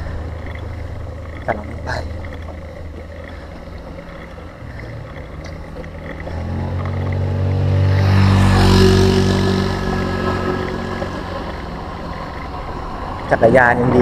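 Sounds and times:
vehicle engine passing: 0.0s - 14.0s
wind and road noise: 0.0s - 14.0s.

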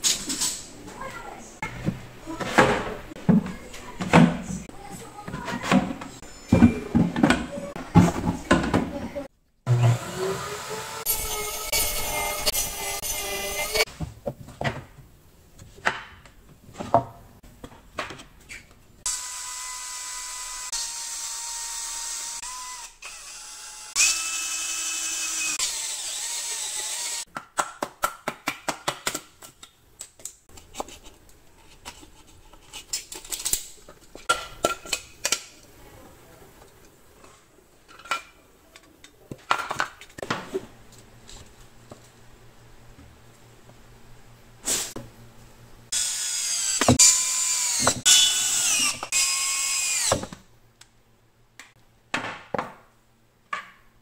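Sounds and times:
cordless drill boring wood: 9.7s - 13.8s, 19.1s - 27.2s, 45.9s - 50.2s
knocks and clicks of board handling: 13.9s - 18.5s, 27.3s - 32.8s, 51.6s - 52.9s, 53.5s - 53.9s.

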